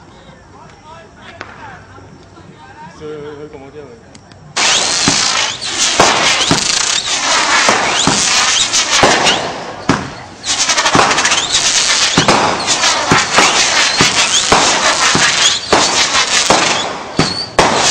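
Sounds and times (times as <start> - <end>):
fireworks crackling and popping: 0.0 - 2.8, 4.2 - 17.9
fireworks whistling: 4.5 - 17.9
fireworks hissing sparks: 4.6 - 17.9.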